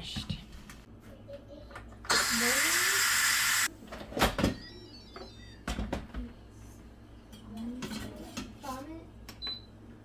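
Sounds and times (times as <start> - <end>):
pressure cooker steam vent hissing: 2.1 - 3.7.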